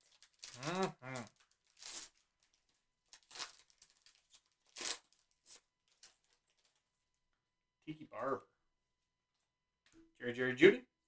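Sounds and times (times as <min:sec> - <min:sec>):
papery rustles and tearing: 0:00.0 - 0:06.8.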